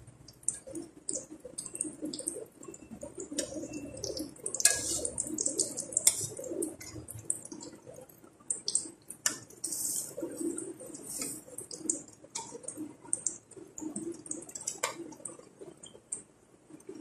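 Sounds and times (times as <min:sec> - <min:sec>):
dough deep-frying in hot oil: 0:00.0 - 0:17.0.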